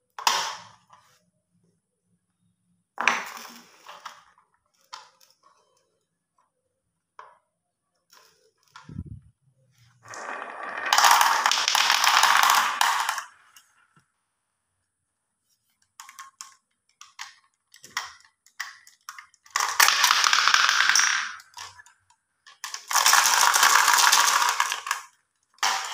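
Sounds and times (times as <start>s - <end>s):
marbles rolling down wooden slope: 10.0s - 13.7s, 19.5s - 25.9s
marbles rattling in plastic toy: 10.1s - 13.7s, 17.9s - 21.9s, 22.5s - 25.9s
marbles clicking on plastic: 10.1s - 14.0s, 15.9s - 25.9s.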